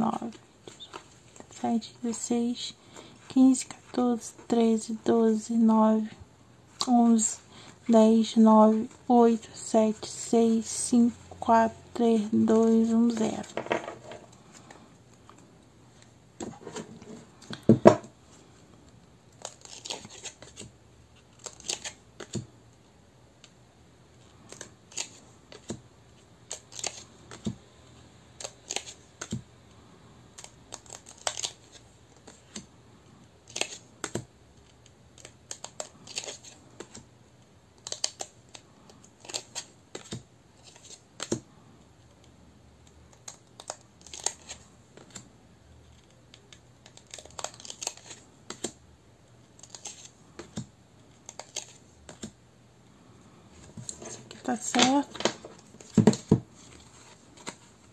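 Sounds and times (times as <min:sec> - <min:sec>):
cards clicking and rustling: 0:12.1 - 0:18.1, 0:19.3 - 0:22.5, 0:24.3 - 0:25.8, 0:26.5 - 0:27.6, 0:28.4 - 0:29.4, 0:30.3 - 0:32.7, 0:33.4 - 0:37.1, 0:37.8 - 0:41.5, 0:42.1 - 0:48.8, 0:49.5 - 0:52.4, 0:53.6 - 0:57.9.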